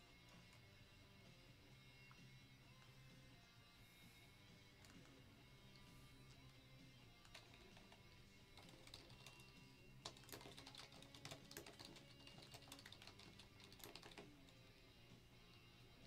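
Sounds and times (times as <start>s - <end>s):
quiet background music: 0.0s - 16.0s
typing on computer keyboard: 7.2s - 14.4s.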